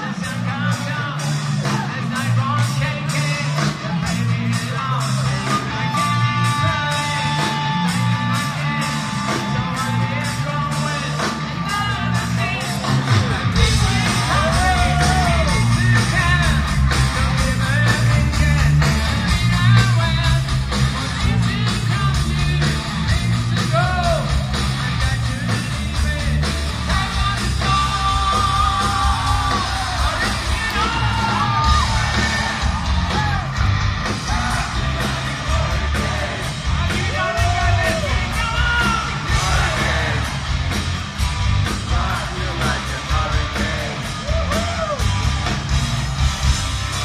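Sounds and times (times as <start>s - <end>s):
sung and yelled vocals: 0.0s - 45.4s
live hard rock band: 0.0s - 47.0s.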